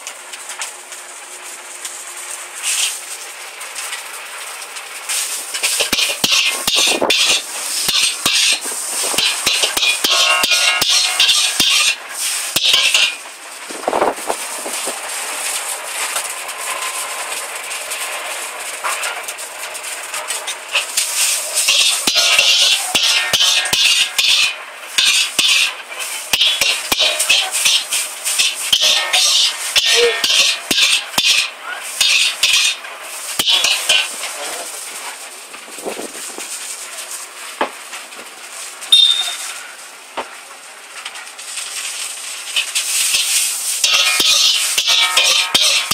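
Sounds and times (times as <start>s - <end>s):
noodles sizzling in a wok: 0.0s - 45.9s
metal clatter: 5.5s - 13.2s, 20.2s - 32.8s, 33.4s - 35.2s, 42.5s - 45.9s
ladle clinking on metal pan: 5.6s - 8.6s, 9.2s - 12.0s, 12.6s - 13.2s, 21.7s - 25.7s, 26.3s - 32.8s, 33.4s - 34.1s, 38.9s - 39.5s, 43.8s - 45.9s.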